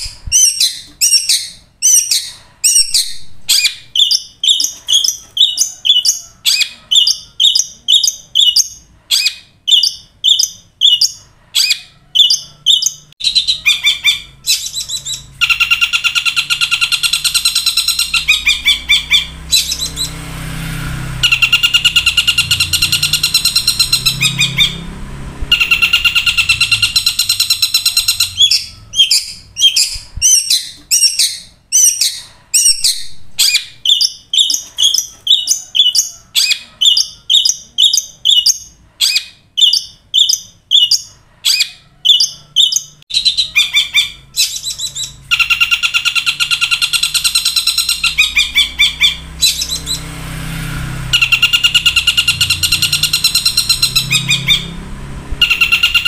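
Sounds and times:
bird sharp call notes: 0:21.2 - 0:24.9, 0:25.5 - 0:37.5, 0:51.1 - 0:54.8.

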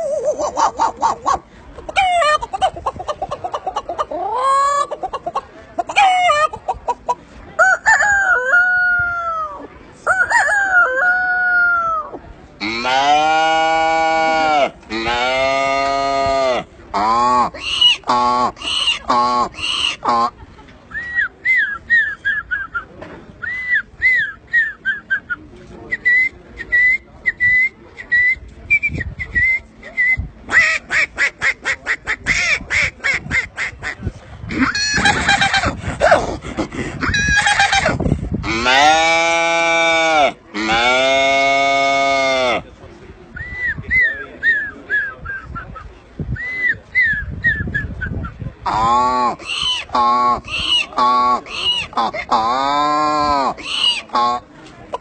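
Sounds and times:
man imitating animal calls: 0:11.1 - 0:20.3, 0:34.5 - 0:42.6, 0:48.6 - 0:54.4.

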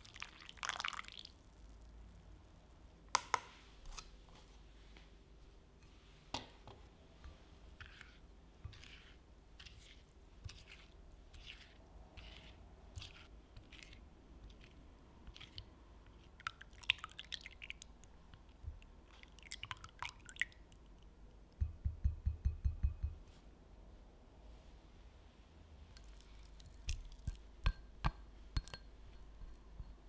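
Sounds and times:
spatula swishing liquid: 0:07.2 - 0:17.8
utensil scraping glass bowl: 0:07.8 - 0:16.4.

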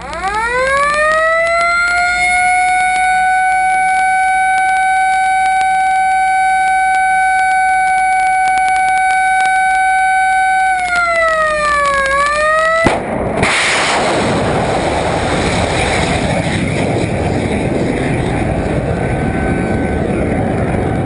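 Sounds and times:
warning siren wailing: 0:00.0 - 0:12.9.

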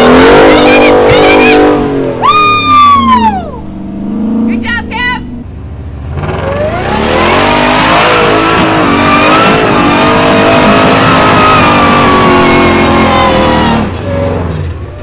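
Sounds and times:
vehicle engine revving hard: 0:00.0 - 0:02.2, 0:03.8 - 0:04.6, 0:06.0 - 0:14.8.

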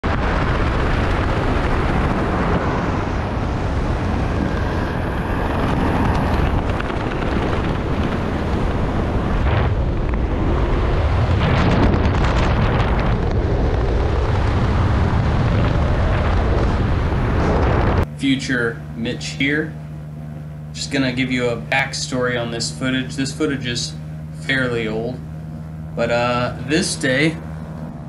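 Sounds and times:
wind on microphone: 0:00.0 - 0:18.1.

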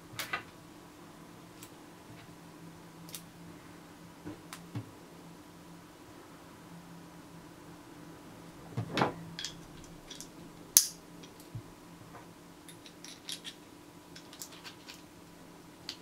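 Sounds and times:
revolver parts clicking: 0:09.4 - 0:11.5, 0:12.7 - 0:15.1.

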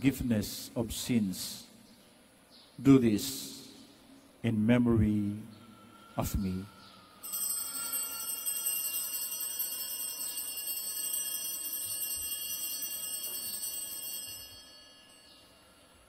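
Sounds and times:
altar bells ringing: 0:07.2 - 0:16.0.

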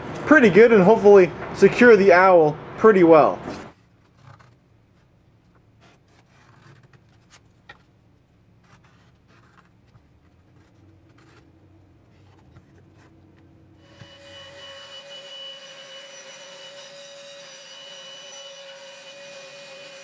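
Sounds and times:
pencil scratching on plywood: 0:05.8 - 0:07.4, 0:08.6 - 0:13.1.

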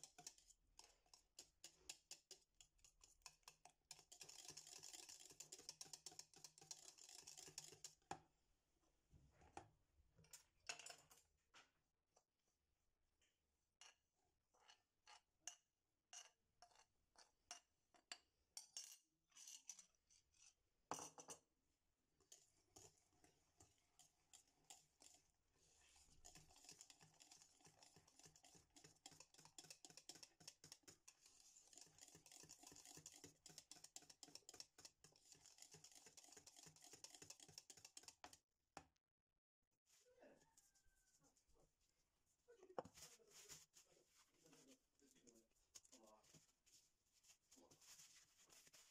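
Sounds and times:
whisk beating in metal saucepan: 0:00.0 - 0:08.1, 0:22.2 - 0:38.4
spoon scraping ceramic bowl: 0:02.9 - 0:08.0, 0:22.2 - 0:38.4.

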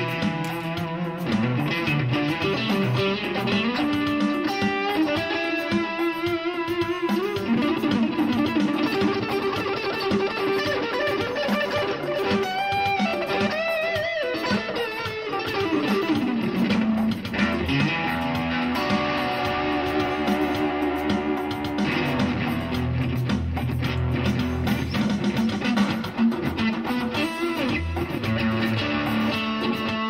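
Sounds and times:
electric guitar with bent notes: 0:00.0 - 0:30.0.

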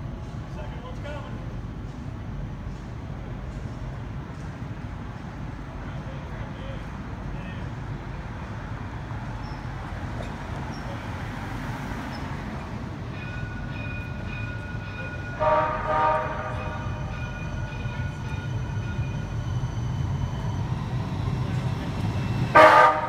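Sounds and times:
electric streetcar whine: 0:00.0 - 0:23.0
streetcar horn: 0:15.1 - 0:17.4, 0:22.4 - 0:23.0.

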